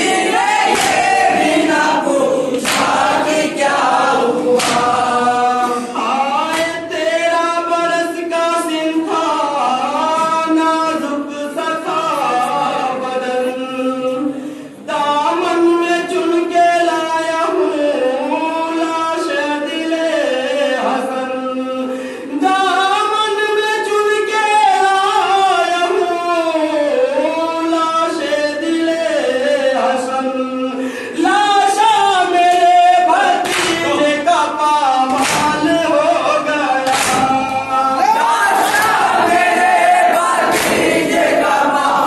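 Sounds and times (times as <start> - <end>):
men chanting a lament: 0.0 - 42.0
chest-beating slaps: 0.6 - 1.5, 2.5 - 3.4, 4.5 - 5.2, 33.4 - 34.0, 35.1 - 35.8, 36.8 - 37.6, 40.4 - 41.2.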